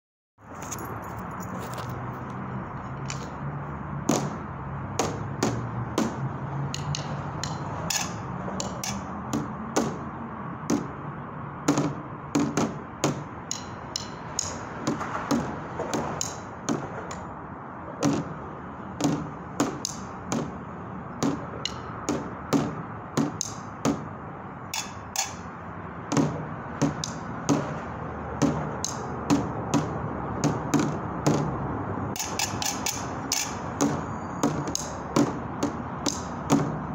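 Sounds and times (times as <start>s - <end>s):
steady background noise: 0.4s - 36.9s
drumsticks on metal lid and tub: 6.8s - 9.1s, 24.7s - 25.5s, 32.1s - 36.6s.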